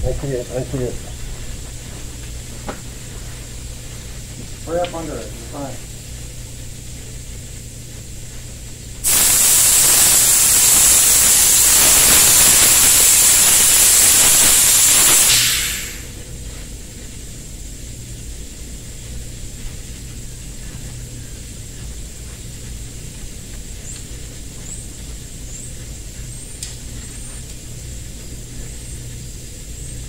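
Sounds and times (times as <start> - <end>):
spray gun hissing: 9.0 - 16.4.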